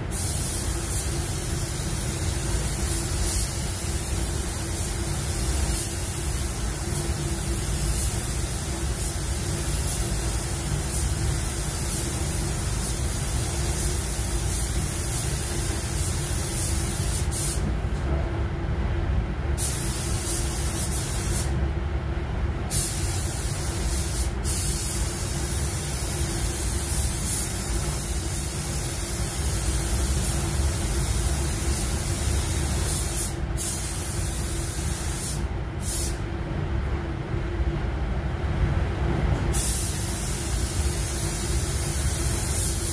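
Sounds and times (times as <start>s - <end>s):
ventilation low rumble: 0.0s - 42.9s
paint spray gun hissing: 0.1s - 17.6s, 22.7s - 36.2s, 39.6s - 42.9s.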